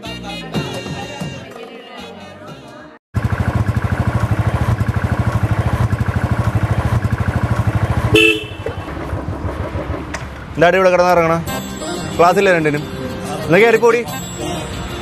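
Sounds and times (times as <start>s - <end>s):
motorcycle engine idling: 3.2s - 10.1s.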